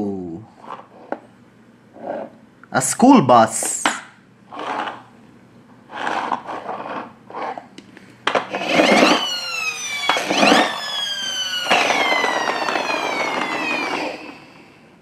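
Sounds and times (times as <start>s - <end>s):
toy siren tone sliding down: 8.6s - 14.8s.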